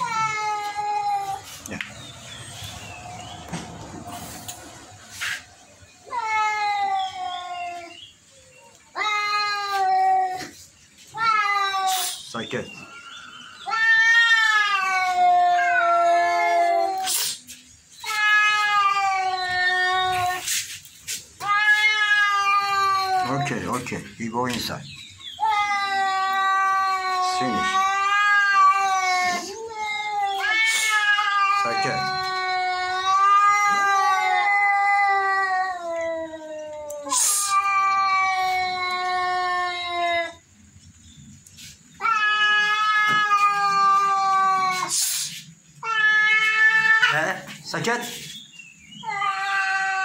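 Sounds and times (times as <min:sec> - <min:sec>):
cat yowling: 0:00.0 - 0:01.8, 0:13.6 - 0:17.4, 0:18.0 - 0:20.5, 0:21.4 - 0:23.8, 0:25.4 - 0:40.4, 0:42.0 - 0:47.5, 0:49.0 - 0:50.0
cat hissing: 0:09.5 - 0:12.4, 0:13.6 - 0:23.8, 0:25.4 - 0:34.8, 0:36.9 - 0:38.9, 0:41.6 - 0:48.4.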